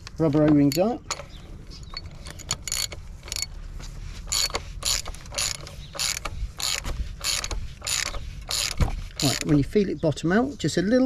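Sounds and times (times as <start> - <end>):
hand ratchet clicking: 0.0 - 3.5, 4.3 - 9.6.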